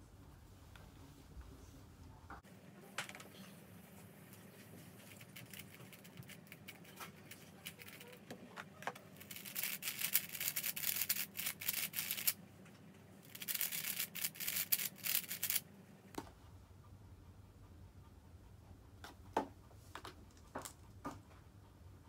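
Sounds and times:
puzzle cube clicking: 0:09.2 - 0:12.4, 0:13.3 - 0:15.6.

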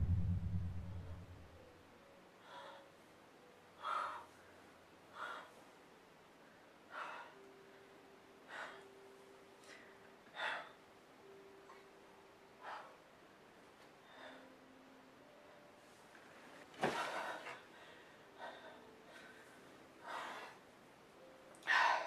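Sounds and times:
man breathing heavily: 0:06.8 - 0:07.5, 0:08.4 - 0:09.0, 0:16.9 - 0:20.6.

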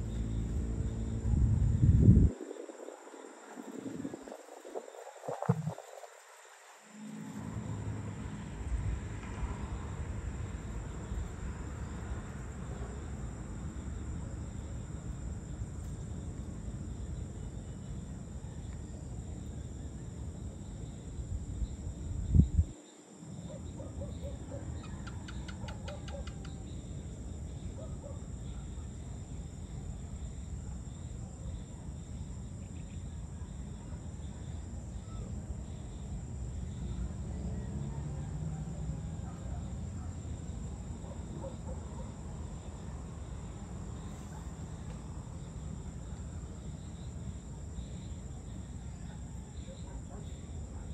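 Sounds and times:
low rumble: 0:00.0 - 0:02.4
high insect drone: 0:00.0 - 0:50.9.

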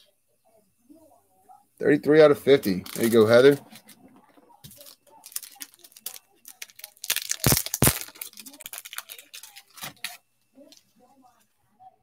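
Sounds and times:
cards clicking and rustling: 0:04.6 - 0:10.2.

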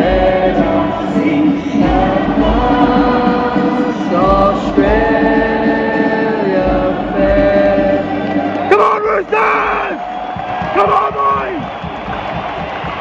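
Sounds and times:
choir singing slowly: 0:00.0 - 0:08.8.

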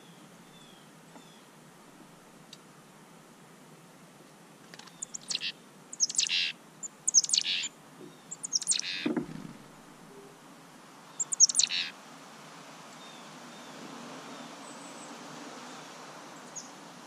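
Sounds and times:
songbirds calling: 0:00.0 - 0:01.6, 0:04.7 - 0:12.0, 0:12.8 - 0:17.0.

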